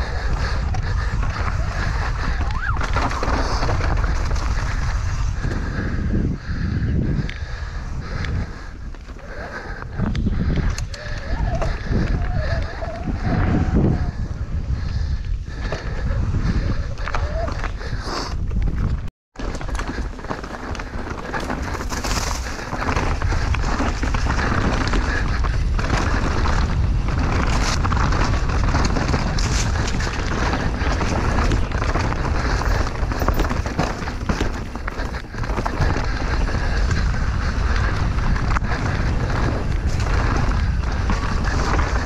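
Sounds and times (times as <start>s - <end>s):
wind buffeting microphone: 0.0s - 42.0s
bike clattering: 19.4s - 42.0s
tyres rumbling over dirt: 19.4s - 42.0s.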